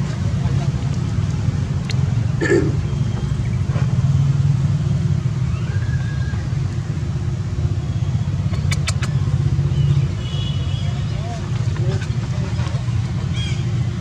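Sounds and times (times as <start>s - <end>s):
sharp clicks: 8.5s - 9.2s.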